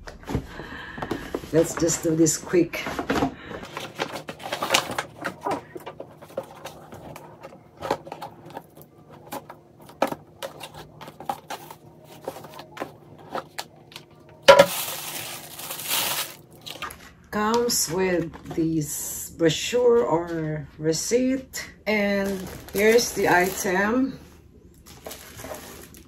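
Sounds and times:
paper bag and box rustling: 1.1s - 17.1s, 21.9s - 26.0s.

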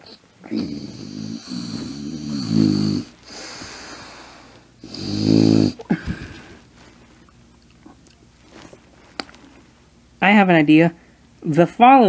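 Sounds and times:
soft breathing: 1.3s - 4.9s, 5.8s - 9.8s.

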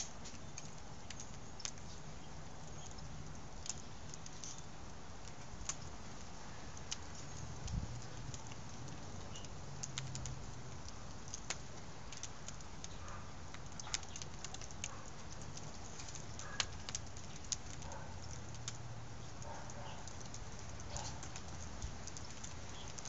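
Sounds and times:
fire crackling and popping: 0.0s - 23.0s.

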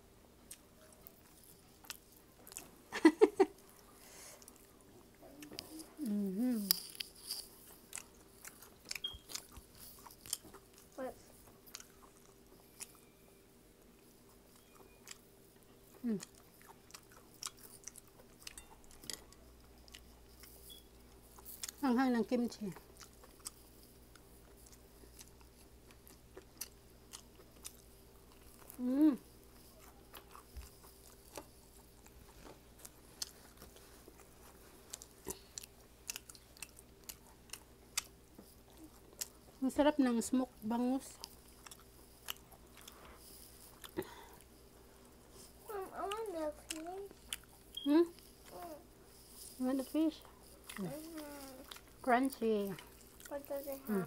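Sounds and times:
chewing and crunching: 0.4s - 54.0s
person humming: 5.5s - 6.8s, 16.0s - 16.2s, 28.8s - 29.3s.

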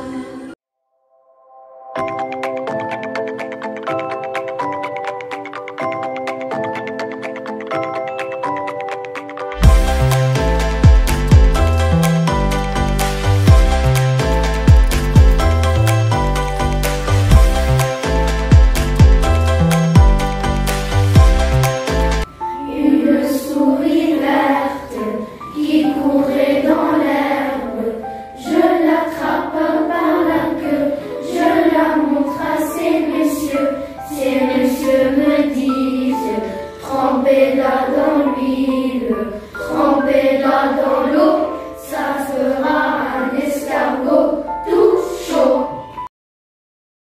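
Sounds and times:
children singing: 0.0s - 0.6s, 22.6s - 45.8s.

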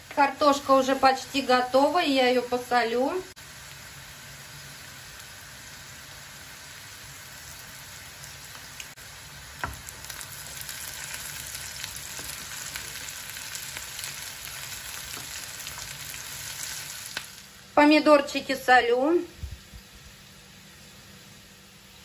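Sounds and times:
potatoes sizzling in oil: 0.0s - 22.0s
oil crackling and spattering: 9.6s - 17.5s.

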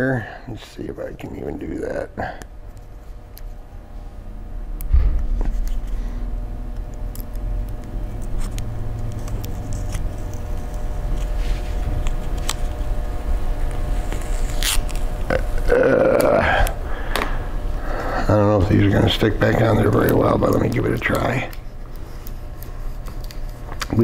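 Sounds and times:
faint steady hum: 0.0s - 24.0s
thump: 4.9s - 5.5s
sticker peeling with crackles: 6.7s - 16.8s, 18.6s - 24.0s.

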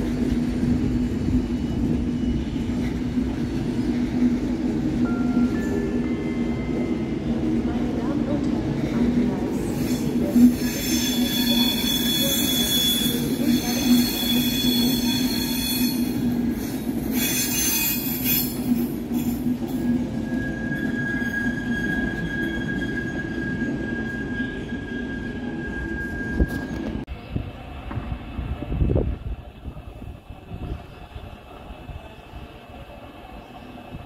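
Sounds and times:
low train rumble: 0.0s - 34.0s
train wheels squealing: 0.2s - 7.1s, 8.8s - 27.0s.

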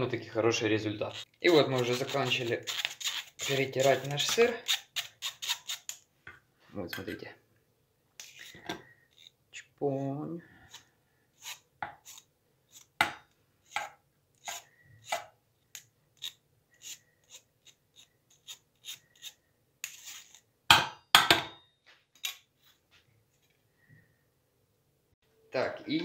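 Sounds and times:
spoon scraping wire sieve: 0.9s - 6.0s, 8.2s - 9.3s, 14.4s - 20.5s.

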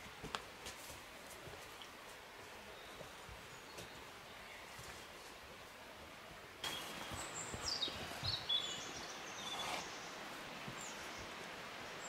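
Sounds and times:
steady low hiss: 0.0s - 12.0s
faint bird chirps: 6.6s - 10.2s.

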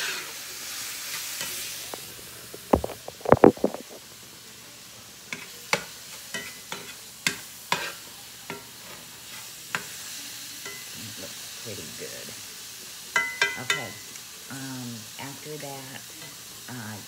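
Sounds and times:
vegetables sizzling in skillet: 0.0s - 17.0s
handling knocks near microphone: 2.6s - 4.0s.

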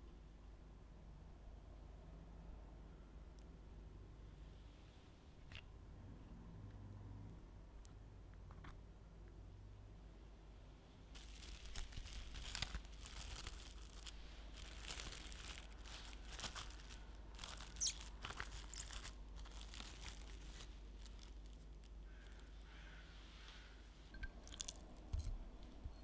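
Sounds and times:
cling film crinkling: 11.2s - 22.5s.

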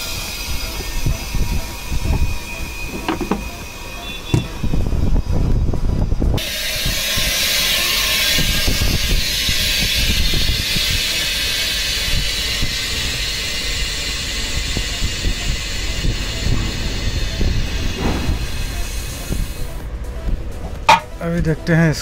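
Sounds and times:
compressed air hissing: 6.4s - 19.7s.

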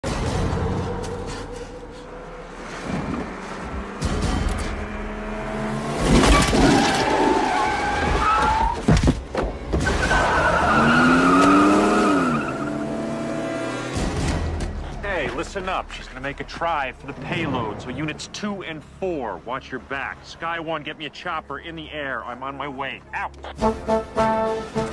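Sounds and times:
background music: 0.0s - 5.9s, 7.6s - 24.9s
car tyres squealing and skidding: 5.9s - 13.8s.

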